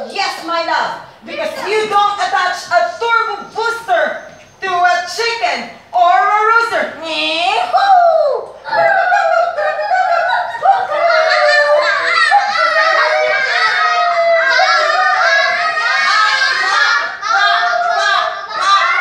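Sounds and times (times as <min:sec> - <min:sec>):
children singing and calling out: 0:07.7 - 0:19.0.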